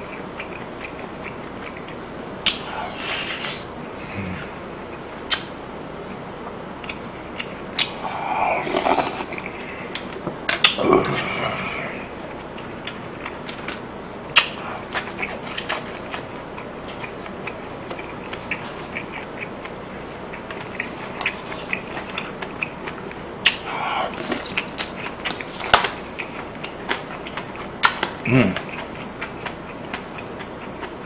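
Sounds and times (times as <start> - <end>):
person chewing food: 0.0 - 31.0
wet mouth clicks: 1.7 - 2.8.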